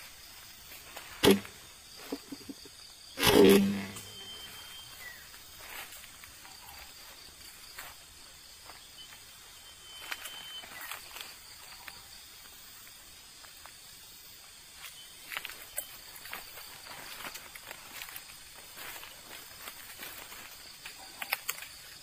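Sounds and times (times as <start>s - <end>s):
rustling on dry leaves: 3.2s - 8.3s, 15.2s - 22.0s.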